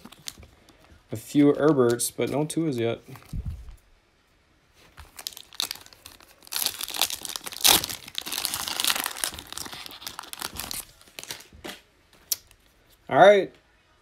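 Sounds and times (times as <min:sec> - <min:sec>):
foil wrapper tearing and crinkling: 0:05.0 - 0:11.5.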